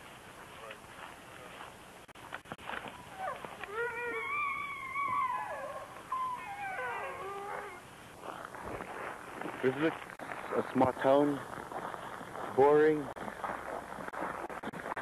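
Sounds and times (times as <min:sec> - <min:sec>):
dog howling: 0:02.8 - 0:07.8.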